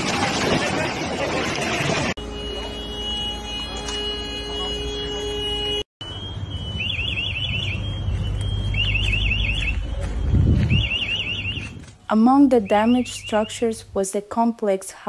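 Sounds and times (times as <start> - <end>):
electronic alarm warbling: 2.1 - 11.8.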